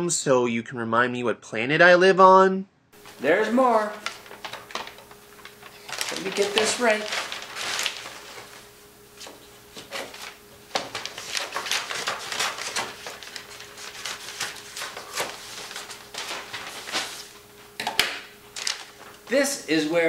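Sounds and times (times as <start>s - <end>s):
paper rustling and crinkling: 3.0s - 17.8s, 18.4s - 19.4s.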